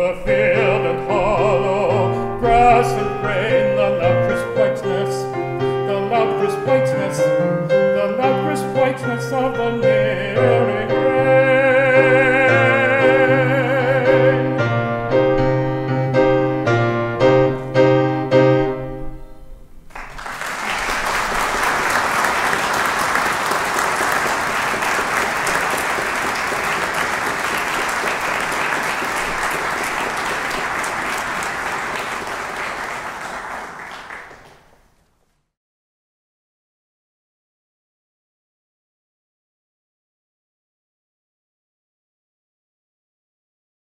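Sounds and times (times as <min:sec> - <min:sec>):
piano playing: 0:00.0 - 0:34.2
audience applause: 0:19.9 - 0:35.0.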